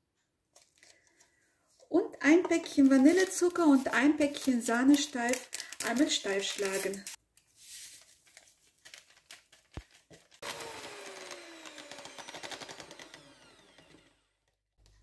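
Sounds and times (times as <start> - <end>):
electric mixer whipping cream: 10.4 - 14.5.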